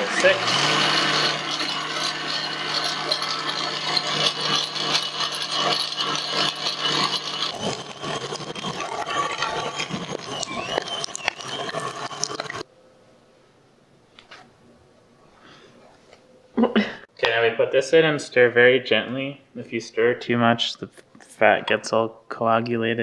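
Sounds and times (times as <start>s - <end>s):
grinder clicks and rattles: 0.0s - 12.6s
meat grinder motor hum: 0.0s - 12.6s.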